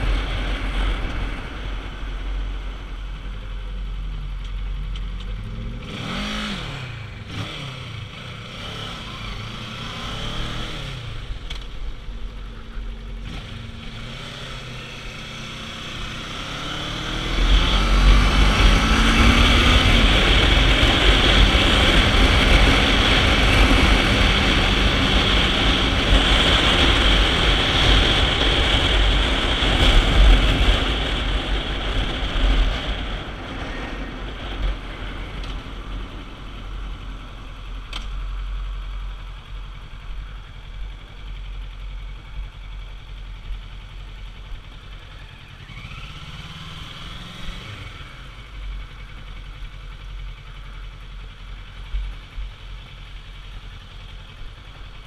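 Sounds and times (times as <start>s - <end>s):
motorcycle engine: 0.0s - 55.0s
wind noise: 16.4s - 36.0s.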